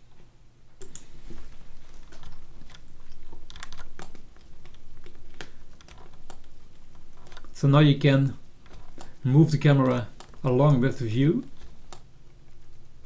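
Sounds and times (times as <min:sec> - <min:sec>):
computer mouse clicks: 0:00.8 - 0:01.1, 0:02.0 - 0:07.6, 0:11.5 - 0:12.1.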